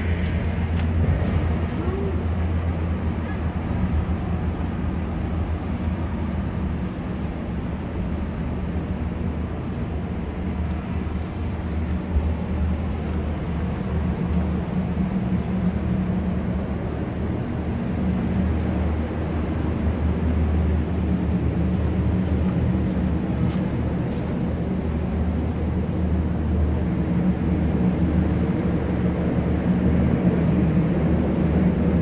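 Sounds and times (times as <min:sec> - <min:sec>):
city street traffic rumble: 0:00.0 - 0:32.0.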